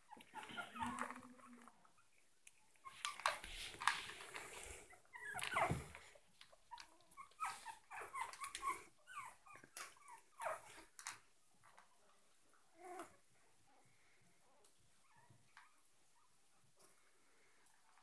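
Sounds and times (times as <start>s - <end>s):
puppies whimpering: 0.0s - 3.5s, 4.7s - 11.0s.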